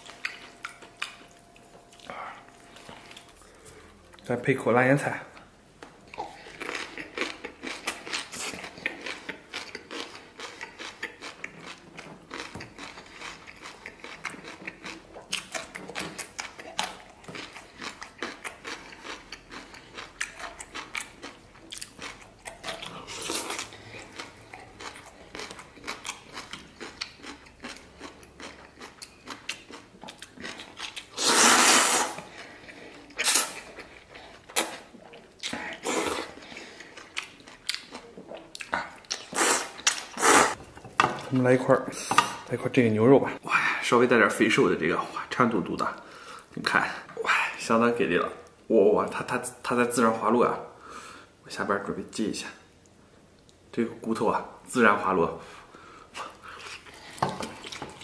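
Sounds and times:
person chewing: 0.0s - 4.3s, 5.3s - 41.4s, 55.7s - 58.0s
slurping noodles: 31.1s - 32.2s, 39.3s - 40.6s.

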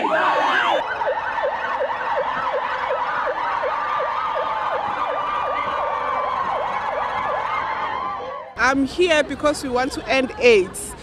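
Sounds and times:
electronic siren yelping: 0.0s - 8.6s.

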